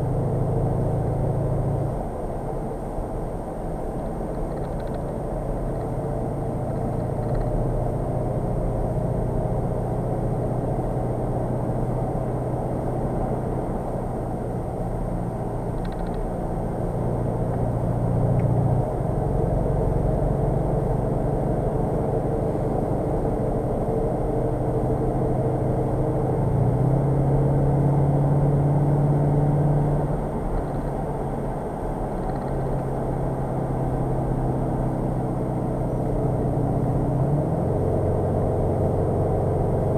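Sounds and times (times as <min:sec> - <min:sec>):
car engine drone: 0:00.0 - 0:39.9
tyre and road noise: 0:03.6 - 0:09.6, 0:14.2 - 0:39.9.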